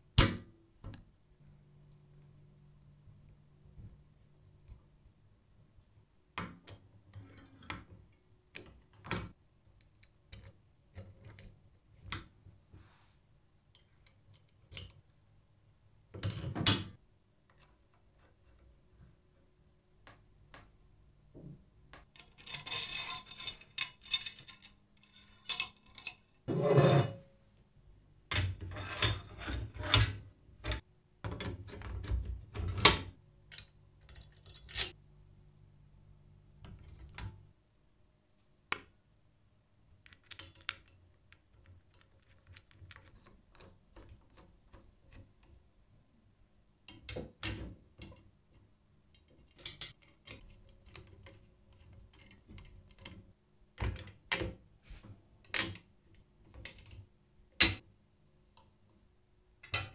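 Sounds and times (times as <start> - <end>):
metal parts scraping and rubbing: 22.2 - 27.2.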